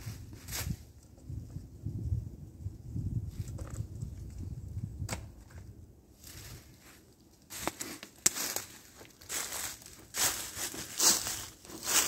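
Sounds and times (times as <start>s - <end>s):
footsteps crunching through dry leaves: 0.0s - 0.8s, 6.2s - 12.0s.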